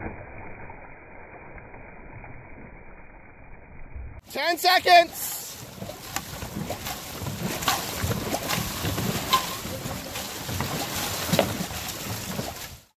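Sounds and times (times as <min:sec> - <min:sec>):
paddles splashing water: 0:04.2 - 0:12.9.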